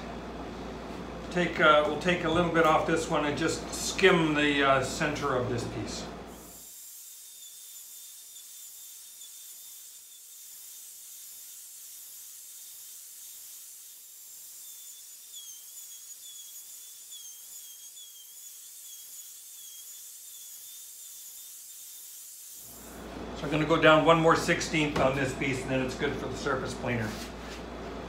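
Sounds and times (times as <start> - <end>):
wood router whining: 6.3 - 23.3.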